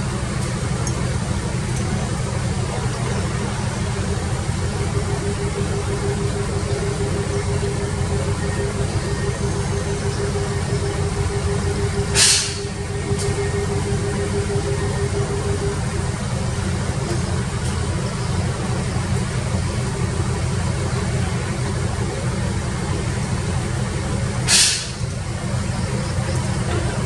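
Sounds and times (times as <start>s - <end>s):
excavator diesel engine running: 0.0s - 27.0s
steady whine: 0.0s - 27.0s
sharp burst of noise: 3.5s - 16.8s.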